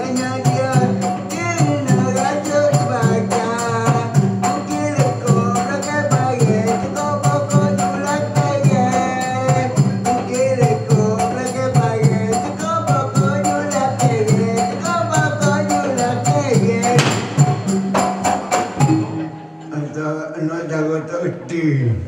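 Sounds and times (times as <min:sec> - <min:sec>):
steady drum pattern: 0:00.0 - 0:19.4
cymbal crash: 0:16.8 - 0:19.4.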